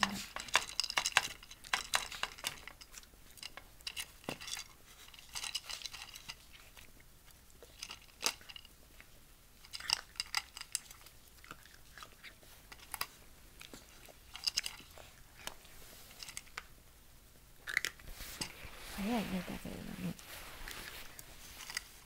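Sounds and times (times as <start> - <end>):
puppy crunching dry kibble: 0.0 - 22.0.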